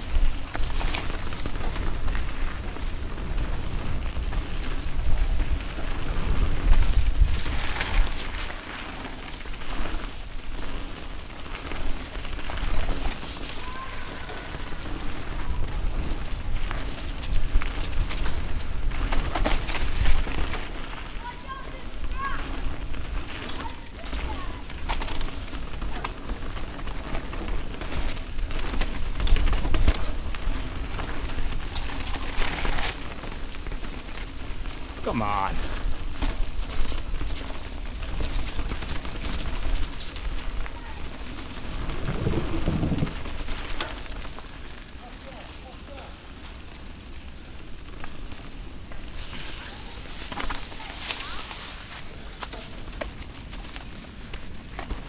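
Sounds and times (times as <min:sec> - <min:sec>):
wind rumbling on microphone: 0:00.0 - 0:21.2, 0:35.6 - 0:45.0
bike clicks and rattles: 0:00.0 - 0:55.0
bike tyres crackling over leaves: 0:00.0 - 0:55.0
wind buffeting microphone: 0:41.6 - 0:43.7.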